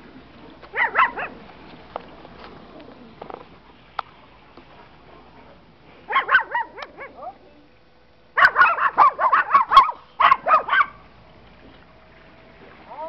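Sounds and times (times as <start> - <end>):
dog yapping: 0.7 - 1.4, 6.1 - 7.4, 8.4 - 11.0.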